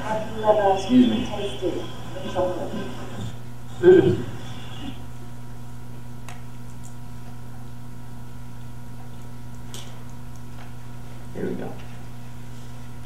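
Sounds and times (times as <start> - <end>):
room hiss: 0.0 - 5.3
low electrical hum: 0.0 - 13.0.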